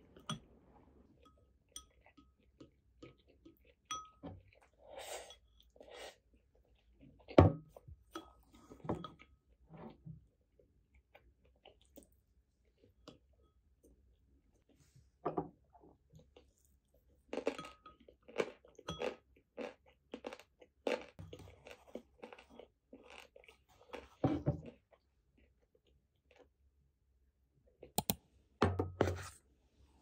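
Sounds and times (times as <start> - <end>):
chewing: 16.2 - 26.5.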